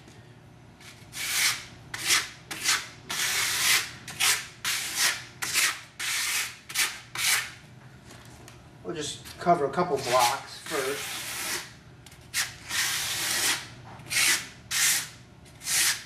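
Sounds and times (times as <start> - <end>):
trowel scraping plaster: 1.1 - 7.6, 9.9 - 11.7, 12.3 - 16.0.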